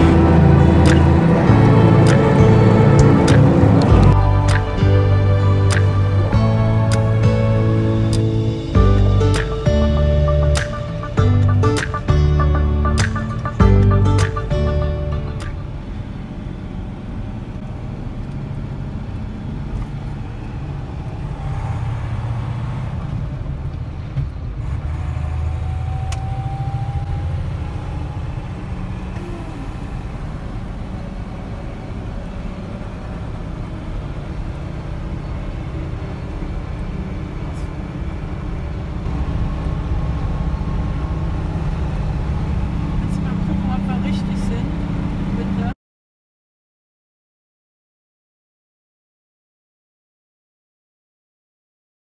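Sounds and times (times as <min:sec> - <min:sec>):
diesel truck engine running: 0:00.0 - 0:45.8
drivetrain and road noise: 0:00.0 - 0:45.8.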